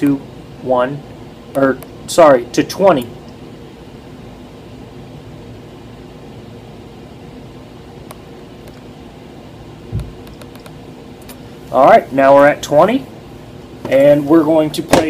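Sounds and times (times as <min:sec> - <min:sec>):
low room hum: 0:00.0 - 0:15.0
soft low thump: 0:09.9 - 0:10.2.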